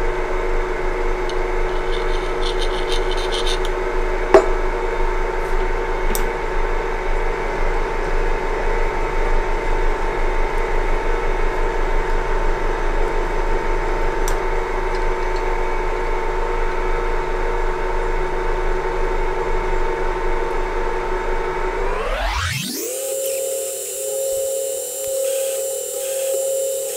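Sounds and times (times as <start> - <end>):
metal lathe whining: 1.6 - 3.7, 21.8 - 26.9.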